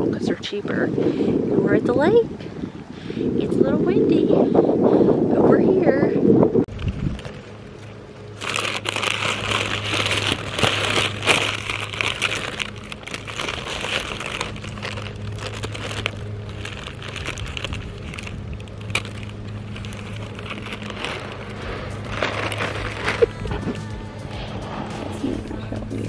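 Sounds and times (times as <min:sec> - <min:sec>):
paper wrapper crinkling: 0:08.2 - 0:24.5.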